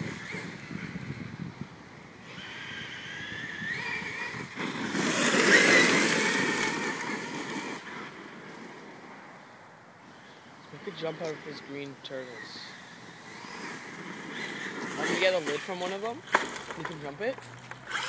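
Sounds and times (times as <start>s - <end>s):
tyres churning over gravel: 13.2s - 18.0s.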